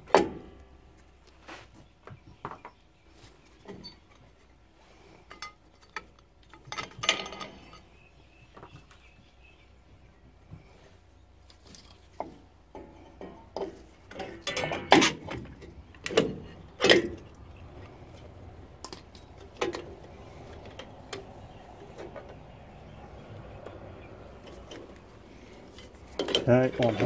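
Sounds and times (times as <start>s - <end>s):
metal brake parts clanking: 12.7s - 23.3s, 24.2s - 27.0s.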